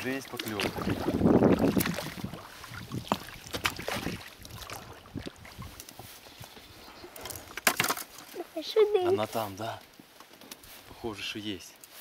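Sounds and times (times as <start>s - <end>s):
oars knocking in oarlocks: 3.0s - 6.0s.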